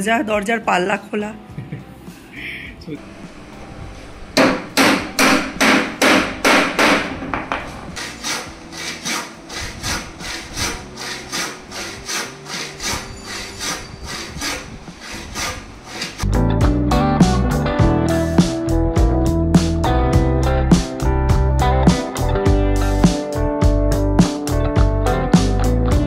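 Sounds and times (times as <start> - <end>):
music: 0.0 - 14.9, 16.2 - 26.0
handsaw cutting wood: 8.0 - 16.3.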